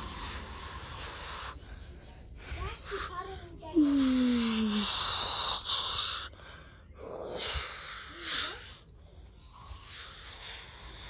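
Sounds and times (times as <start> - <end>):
person making whoosh noises: 3.8 - 4.9.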